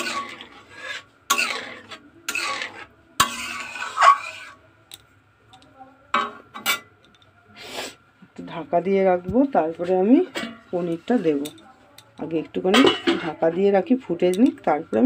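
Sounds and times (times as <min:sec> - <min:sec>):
metal spatula scraping a pan: 0:00.0 - 0:04.6, 0:09.8 - 0:11.6.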